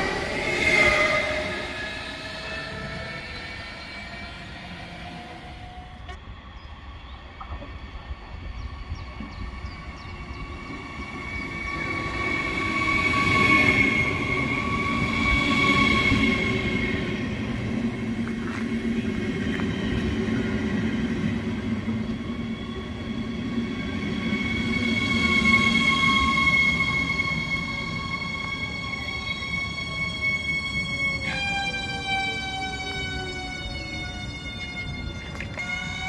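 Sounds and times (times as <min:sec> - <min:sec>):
train running gear rumble: 0:00.0 - 0:36.0
high whining tones: 0:08.0 - 0:36.0.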